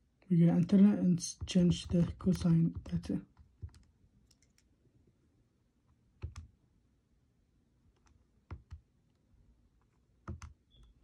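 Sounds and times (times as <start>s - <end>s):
calculator keys clicking: 6.2s - 6.4s.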